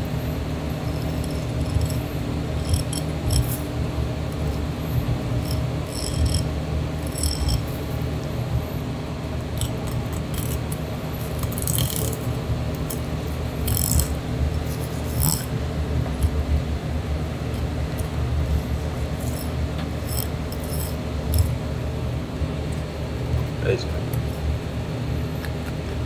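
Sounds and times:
steady low hum: 0.0s - 26.0s
knife clicking against fish bones: 5.4s - 6.4s, 9.6s - 10.8s, 11.4s - 12.2s, 13.7s - 14.2s.

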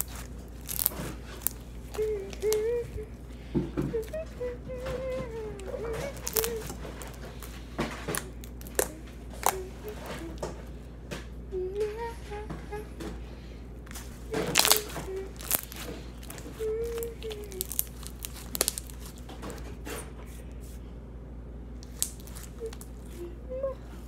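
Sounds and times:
slime wet pops and crackles: 0.0s - 2.6s, 6.2s - 9.6s, 14.4s - 16.6s, 17.3s - 19.2s, 21.8s - 22.9s.

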